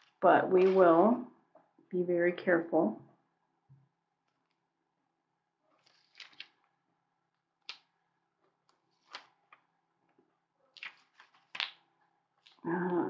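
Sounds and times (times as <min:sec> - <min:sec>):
paper rustling and crinkling: 0:00.0 - 0:01.0, 0:05.8 - 0:06.7, 0:08.6 - 0:09.6, 0:10.7 - 0:11.8.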